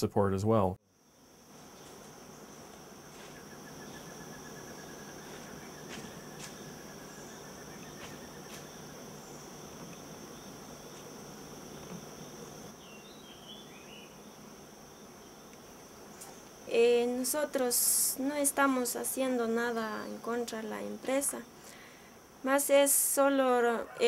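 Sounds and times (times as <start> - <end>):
crickets droning: 0.8 - 24.0
short insect chirps: 0.9 - 22.8.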